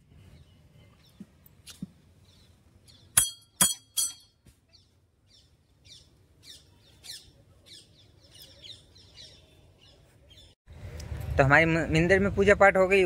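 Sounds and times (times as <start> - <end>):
birds chirping: 0.0 - 3.3, 4.7 - 10.9.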